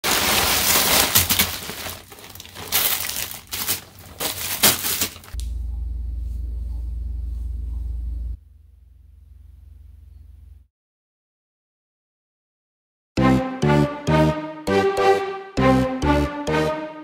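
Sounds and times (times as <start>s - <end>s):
plastic bag crinkling: 0.0s - 5.4s
steady low hum: 5.4s - 10.7s.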